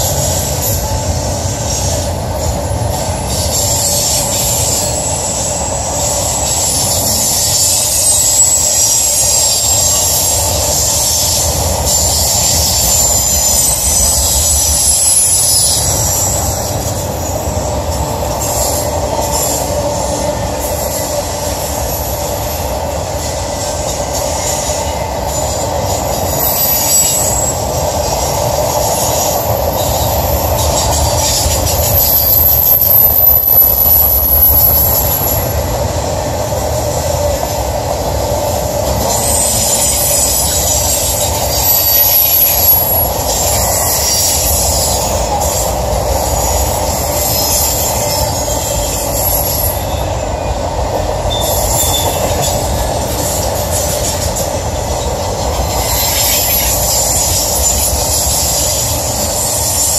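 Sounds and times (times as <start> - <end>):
high-pitched wheel squeal: 0.0 - 35.8, 38.5 - 59.9
steel wheels rumbling on rails: 0.0 - 59.9.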